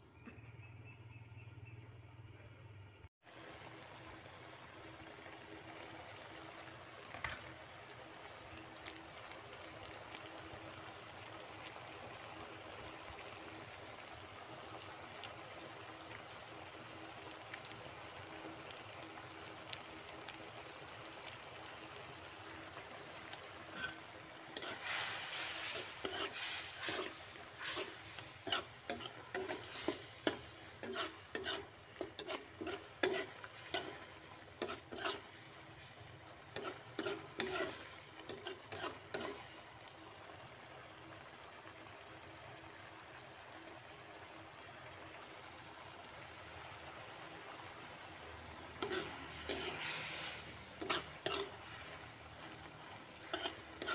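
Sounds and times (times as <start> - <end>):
sauce simmering in a wok: 0.0 - 53.9
spatula scraping a wok: 22.6 - 39.6, 48.7 - 53.9.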